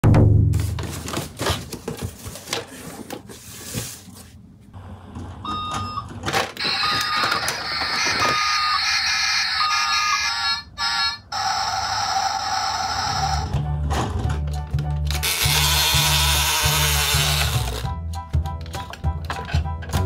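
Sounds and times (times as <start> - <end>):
toy electronic beeping tune: 5.5 - 6.0, 6.6 - 13.5.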